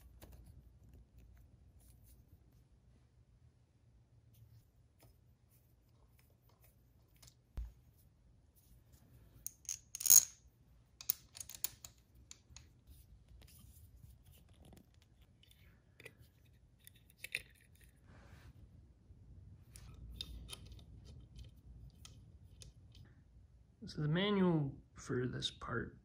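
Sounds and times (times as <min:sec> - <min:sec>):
small metal hardware clinking: 0:09.5 - 0:10.4.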